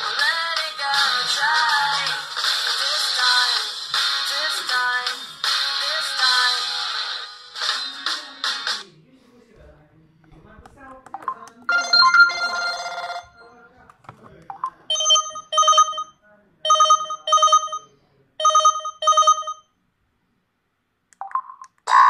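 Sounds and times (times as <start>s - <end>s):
phone ringtone chord: 11.7s - 13.4s, 15.0s - 16.1s, 16.7s - 19.6s.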